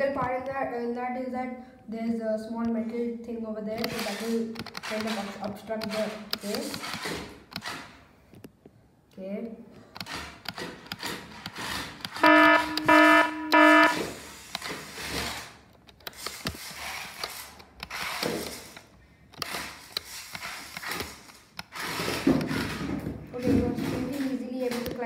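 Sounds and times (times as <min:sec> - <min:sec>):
toy car tyres scraping: 0:10.0 - 0:25.0
electronic buzzer beeps: 0:12.2 - 0:14.2.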